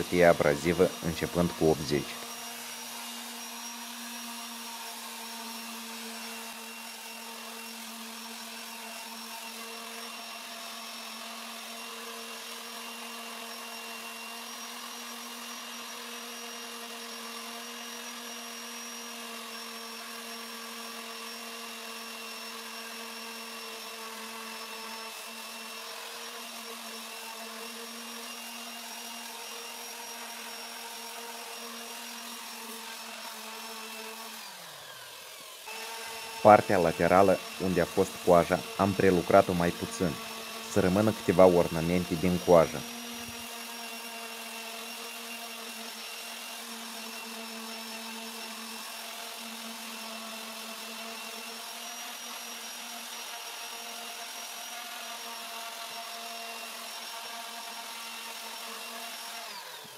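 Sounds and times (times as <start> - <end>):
sandpaper hissing on wood: 0.0 - 2.3, 36.2 - 43.4
orbital sander motor whine: 0.0 - 59.9.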